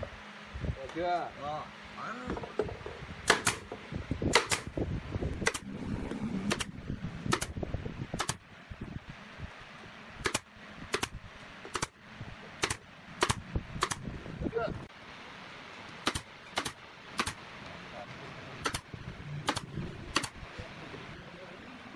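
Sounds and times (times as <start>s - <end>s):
nail gun firing: 3.2s - 3.7s, 4.3s - 4.7s, 5.4s - 5.7s, 6.5s - 6.7s, 7.3s - 7.6s, 8.2s - 8.4s, 10.2s - 12.0s, 12.6s - 14.1s, 16.0s - 17.4s, 18.6s - 20.4s.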